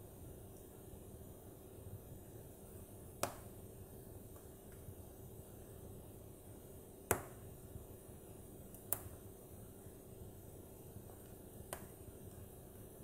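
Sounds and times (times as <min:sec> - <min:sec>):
burning wood crackling pops: 0:03.1 - 0:03.6, 0:07.0 - 0:07.6, 0:08.6 - 0:09.4, 0:10.7 - 0:12.6.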